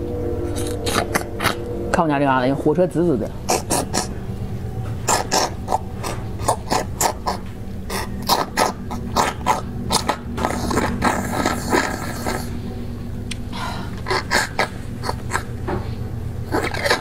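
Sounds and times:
slurping through a plastic straw: 10.0s - 12.6s.

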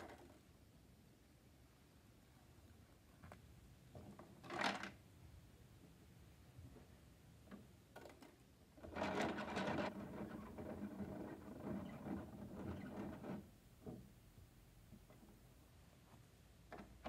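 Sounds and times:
plastic toy truck rattling and clicking: 0.0s - 0.5s, 4.1s - 5.0s, 7.6s - 13.5s.

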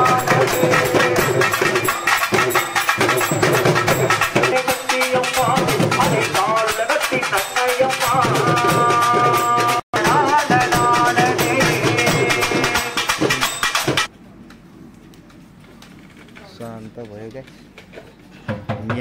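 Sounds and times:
barrel drums played with sticks: 0.0s - 14.1s.

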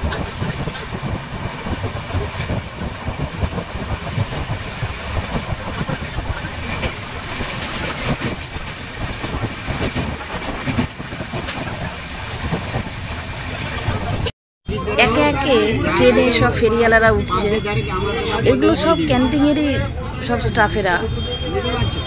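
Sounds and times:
wheels clattering on rails: 0.0s - 14.3s
train carriage rumble: 0.0s - 22.0s.

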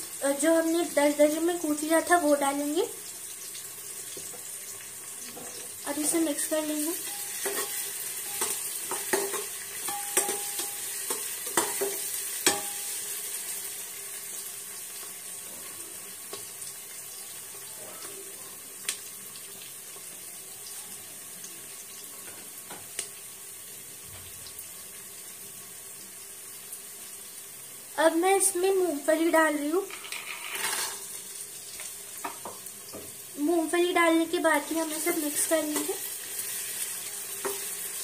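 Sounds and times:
onions sizzling in oil: 0.0s - 38.0s
steel spoon scraping pot: 29.9s - 31.1s.

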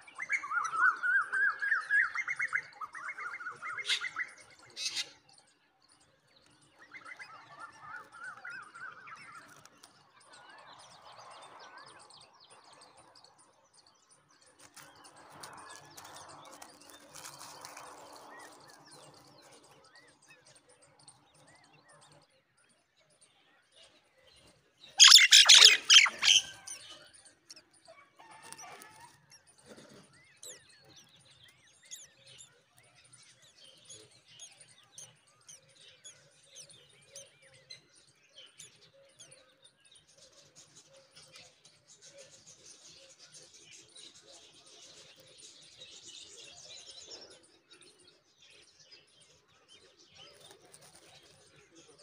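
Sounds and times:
nestlings chirping: 14.6s - 19.7s, 25.0s - 27.6s.

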